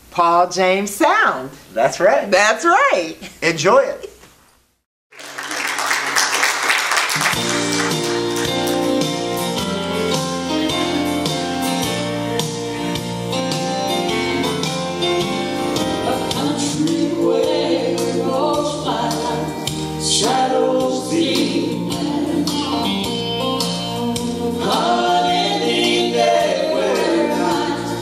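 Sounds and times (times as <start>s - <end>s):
instrumental accompaniment: 7.2s - 28.0s
people singing gospel: 15.8s - 23.0s, 23.9s - 28.0s.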